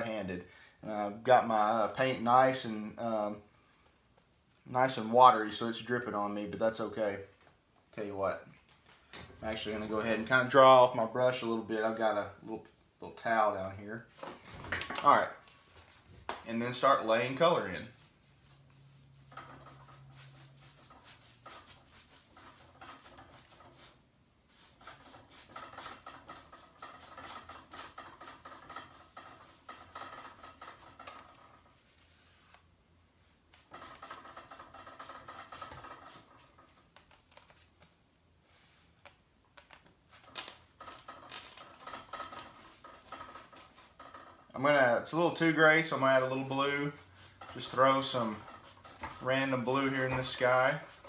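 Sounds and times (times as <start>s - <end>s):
brush scrubbing on canvas: 15.6s - 39.0s, 40.0s - 51.0s.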